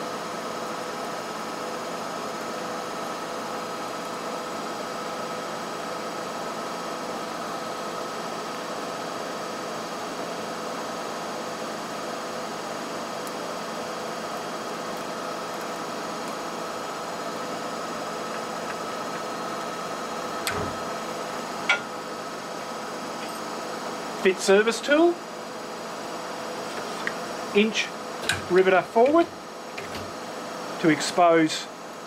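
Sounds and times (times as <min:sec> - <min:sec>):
machine hum: 0:15.0 - 0:31.0.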